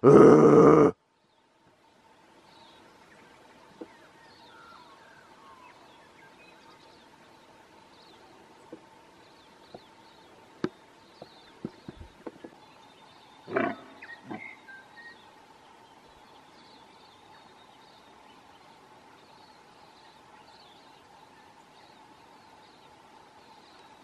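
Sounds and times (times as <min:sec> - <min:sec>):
stag roaring: 0:00.0 - 0:00.9, 0:13.5 - 0:14.4.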